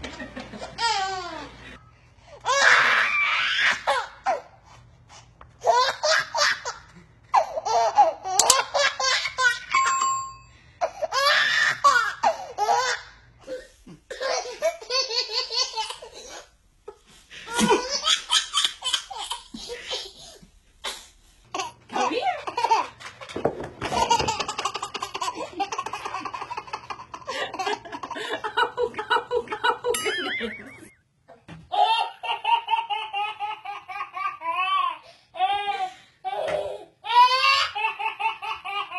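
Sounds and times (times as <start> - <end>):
babies laughing: 0.0 - 1.7, 5.6 - 9.7, 10.9 - 13.2, 14.2 - 20.4, 21.6 - 30.9, 31.7 - 35.7, 36.3 - 38.9.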